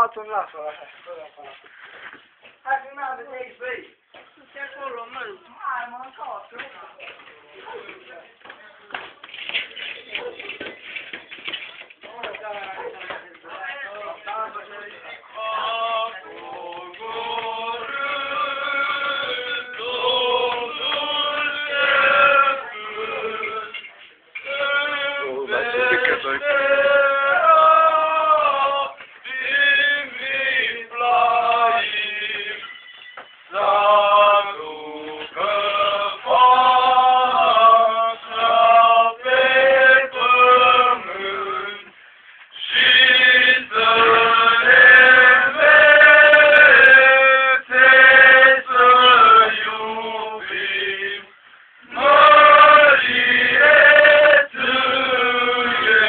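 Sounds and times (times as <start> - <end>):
men singing a christmas song: 13.6 - 56.0.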